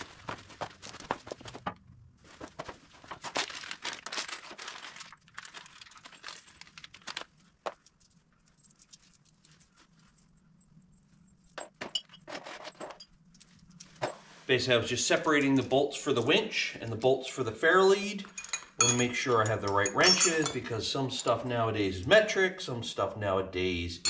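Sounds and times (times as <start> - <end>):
plastic bags rustling: 0.0 - 10.2
metal bolts clinking: 18.2 - 21.4.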